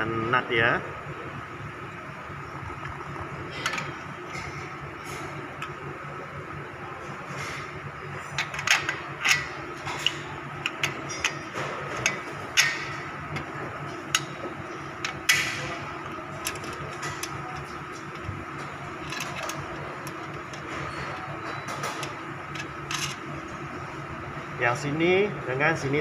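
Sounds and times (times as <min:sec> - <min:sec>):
bolt being handled: 0:19.0 - 0:20.6.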